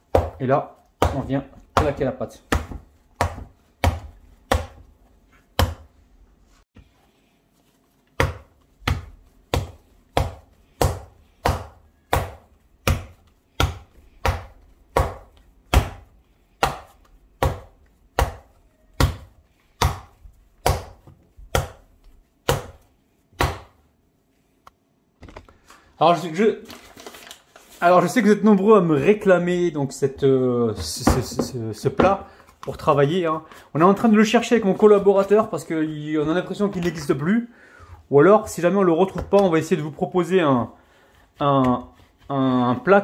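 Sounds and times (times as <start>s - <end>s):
dough slapped against wooden bowl: 0.1s - 4.9s, 5.5s - 6.0s, 8.1s - 23.8s.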